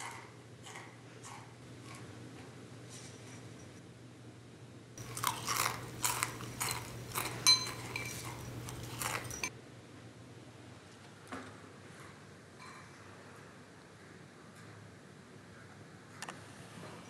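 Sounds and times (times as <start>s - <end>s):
crunchy chewing of cereal: 5.0s - 9.5s
metal spoon clinking glass bowl: 5.0s - 9.5s.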